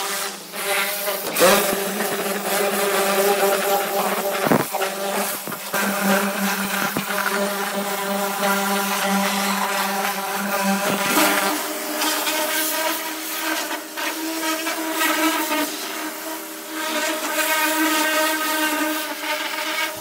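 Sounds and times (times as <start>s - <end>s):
pressure washer motor drone: 0.0s - 14.0s
water jet hissing on sheet metal: 0.0s - 20.0s.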